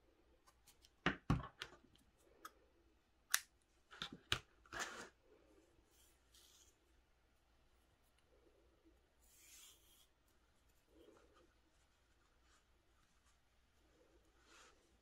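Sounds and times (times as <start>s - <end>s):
scratchy rub: 9.2s - 13.4s.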